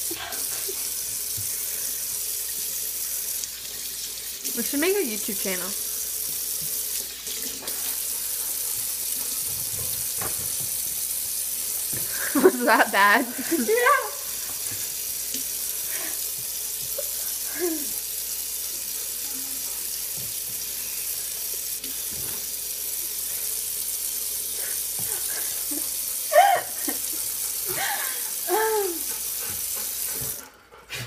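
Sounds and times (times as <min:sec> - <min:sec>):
tap running into sink: 0:09.4 - 0:11.2.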